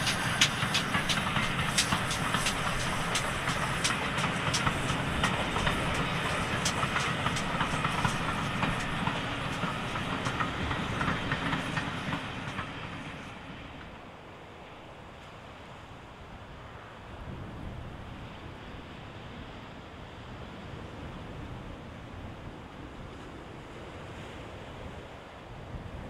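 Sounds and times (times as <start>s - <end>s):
wheels clicking over rail joints: 0.0s - 14.0s
steam train rumbling past: 0.0s - 15.9s.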